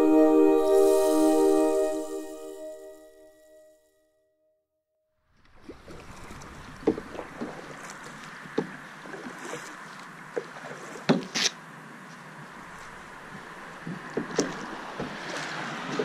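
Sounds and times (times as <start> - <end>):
paddle splashes and knocks: 5.4 - 16.0.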